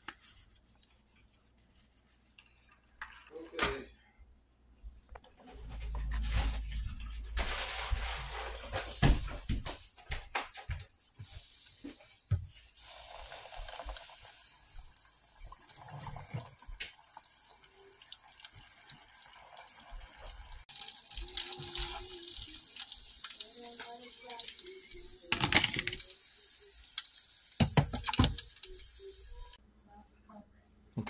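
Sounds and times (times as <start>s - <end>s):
fish frying in hot oil: 12.8s - 29.6s.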